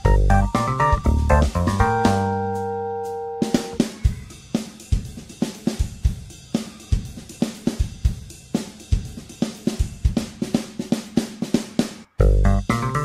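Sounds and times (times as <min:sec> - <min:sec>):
drum-kit beat: 0:00.0 - 0:02.7, 0:03.4 - 0:13.0.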